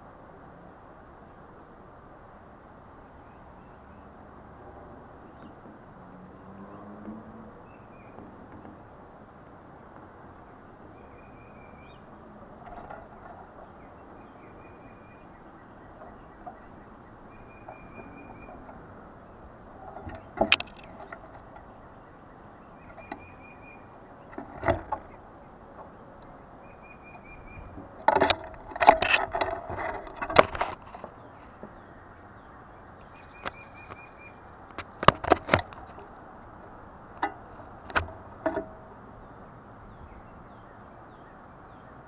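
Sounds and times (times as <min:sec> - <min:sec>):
high bird trill: 0:10.9 - 0:28.0
claws scraping and knocking on camera: 0:27.9 - 0:31.7, 0:34.7 - 0:36.1.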